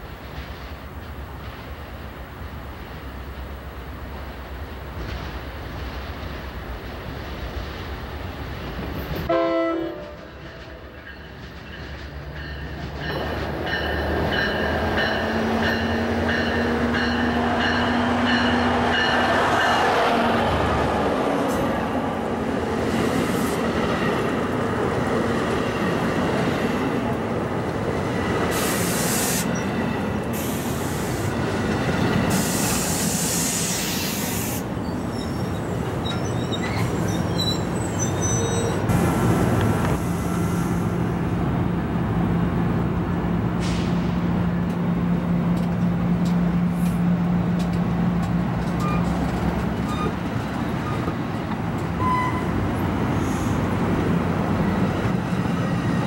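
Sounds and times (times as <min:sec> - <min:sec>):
train wheels rumbling on rail: 0:00.0 - 0:56.0
wheels squealing and hissing: 0:28.5 - 0:29.7, 0:32.3 - 0:40.9, 0:52.0 - 0:53.7.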